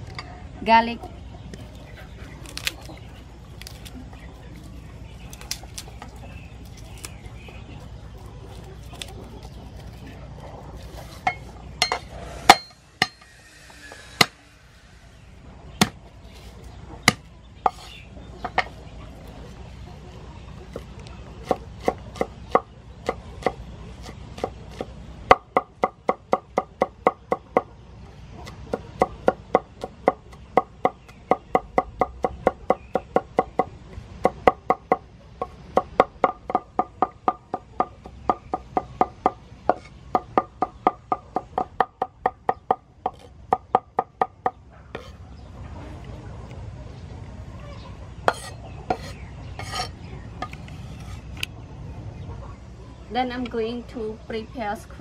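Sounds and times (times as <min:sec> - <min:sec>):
cleaver chopping on wooden board: 0:17.1 - 0:17.8.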